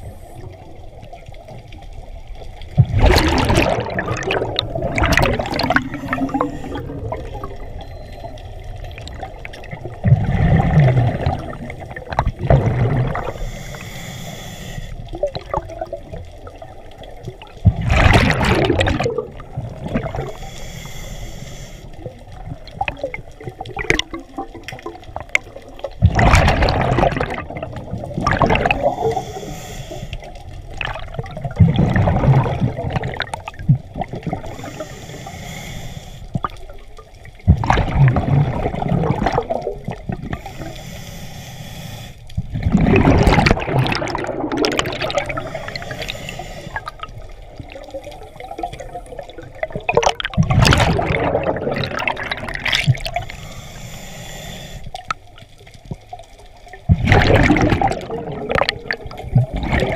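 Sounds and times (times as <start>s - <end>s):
diver bubbles rushing and gurgling: 2.6s - 8.1s, 8.7s - 13.7s, 15.0s - 20.5s, 22.0s - 29.6s, 30.4s - 34.9s, 36.3s - 40.7s, 42.4s - 53.3s, 55.8s - 59.9s.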